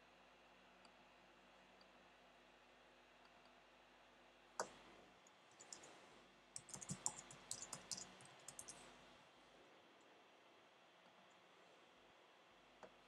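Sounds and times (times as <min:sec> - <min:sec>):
keyboard key clicks: 0:06.6 - 0:08.8.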